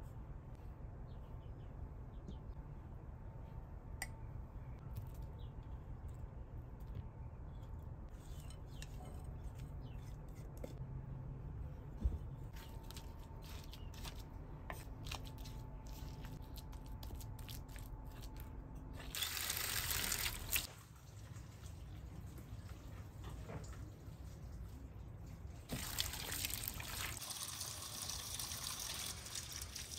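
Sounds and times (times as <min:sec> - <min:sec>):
wooden spoon stirring paste: 0:07.6 - 0:10.8
water trickling: 0:25.7 - 0:29.9.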